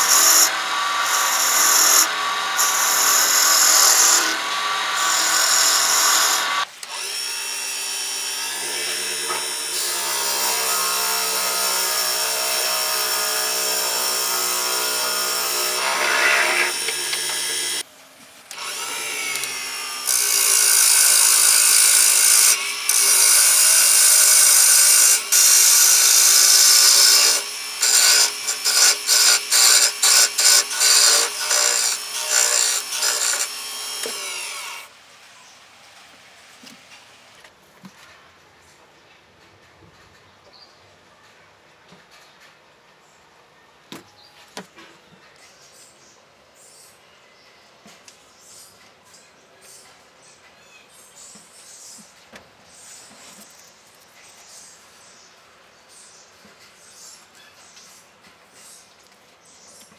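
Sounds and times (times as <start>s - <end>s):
lathe tool scraping wood: 0.0s - 6.6s, 14.3s - 17.8s, 18.6s - 34.8s.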